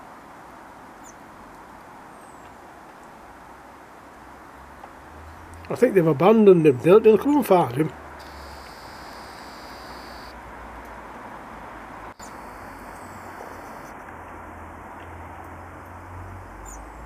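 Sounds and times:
steady hiss: 7.5s - 10.4s
faint high chirps: 8.2s - 10.4s, 12.2s - 14.0s.

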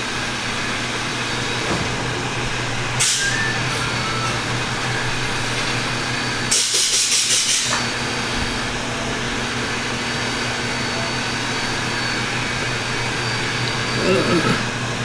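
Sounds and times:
shop machinery hum: 0.0s - 15.0s
compressed air hissing: 1.0s - 8.1s.

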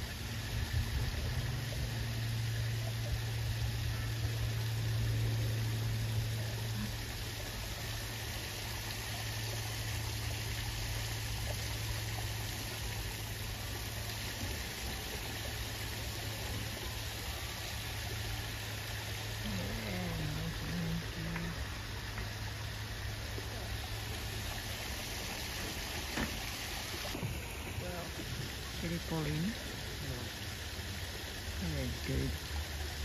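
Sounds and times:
low hum: 0.0s - 26.4s
running water rushing: 0.0s - 33.0s.

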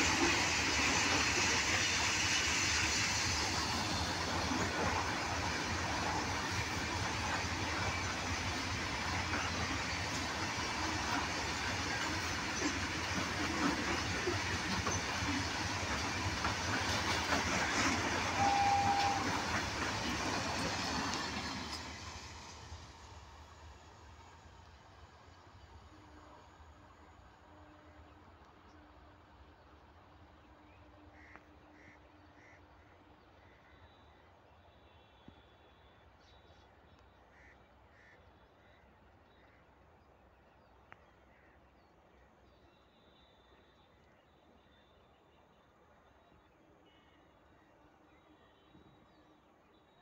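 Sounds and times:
freight train rumbling past: 0.0s - 31.1s
high steady tone: 18.2s - 19.8s.

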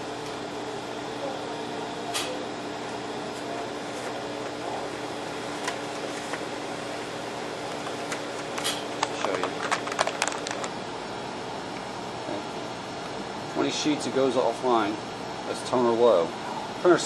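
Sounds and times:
laser printers running: 0.0s - 17.0s
printer clicks and clatter: 5.5s - 6.5s, 7.6s - 10.8s.

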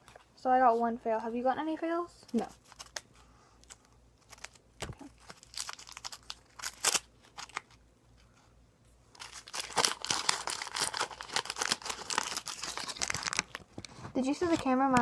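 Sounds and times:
lollipop wrapper crinkling: 2.3s - 8.2s, 9.1s - 14.7s.

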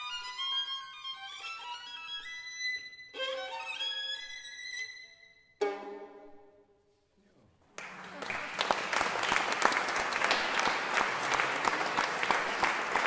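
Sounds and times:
solo violin: 0.0s - 6.7s
audience applause: 7.8s - 13.0s.

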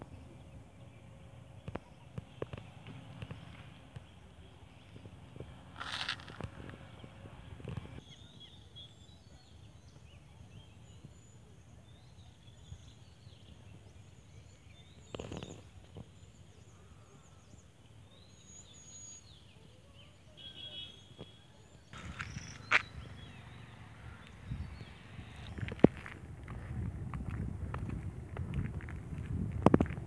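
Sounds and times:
small birds chirping: 0.0s - 26.2s
steady low rumble: 22.0s - 30.0s.

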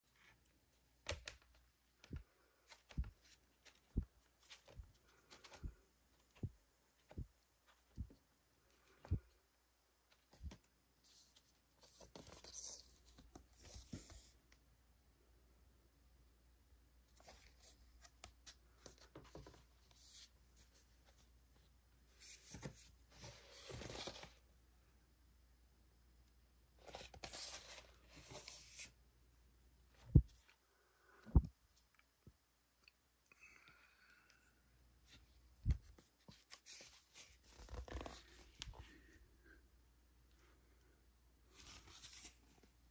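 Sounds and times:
cardboard sleeves rustling: 0.1s - 9.3s, 10.2s - 14.4s, 17.1s - 24.4s, 26.8s - 29.0s, 35.0s - 39.2s, 41.5s - 42.9s.

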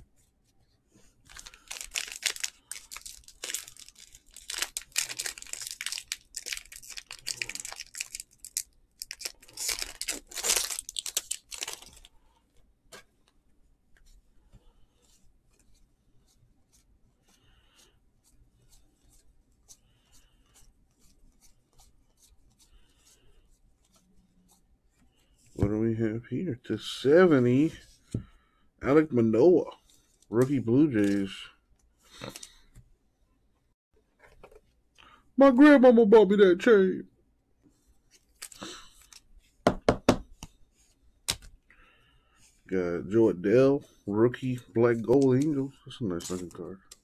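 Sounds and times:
cards rustling when handled: 1.2s - 12.1s, 29.8s - 31.5s, 32.1s - 32.7s, 38.0s - 39.6s, 44.4s - 47.0s
foil wrappers ripping: 1.3s - 12.1s.

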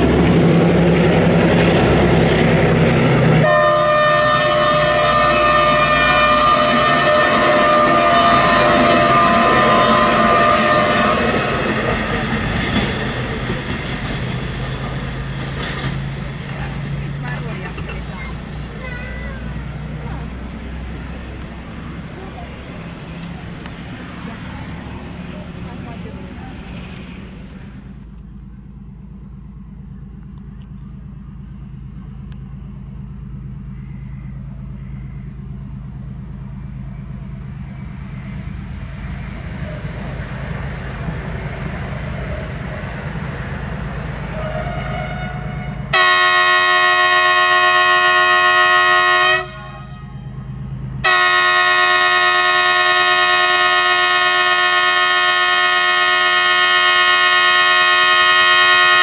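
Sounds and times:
locomotive engine drone: 0.0s - 59.0s
locomotive horn blasts: 3.4s - 12.0s, 44.3s - 50.4s, 51.0s - 59.0s.

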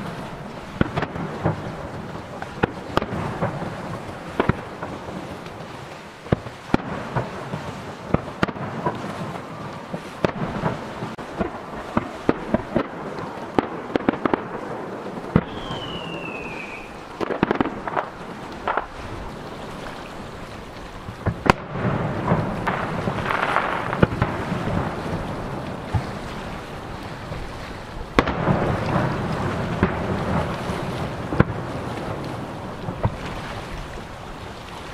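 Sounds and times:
falling firework whistle: 15.3s - 17.6s.

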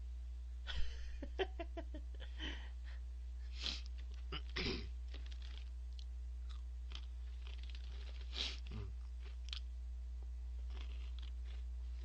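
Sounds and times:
low steady hum: 0.0s - 12.0s
person huffing breath: 2.2s - 3.9s
person sniffing: 3.5s - 3.9s, 8.2s - 8.9s.

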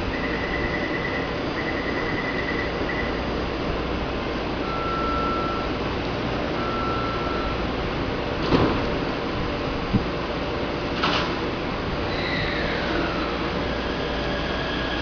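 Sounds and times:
train ventilation running: 0.0s - 15.0s
door warning beeps: 4.7s - 5.7s, 6.6s - 7.6s
sliding doors thudding shut: 8.3s - 9.2s, 10.9s - 11.4s.

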